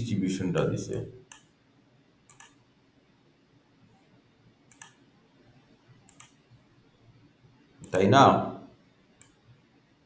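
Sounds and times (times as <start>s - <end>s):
faint computer mouse clicks: 0.9s - 1.5s, 2.3s - 2.6s, 4.7s - 5.0s, 6.0s - 6.4s, 9.2s - 9.4s.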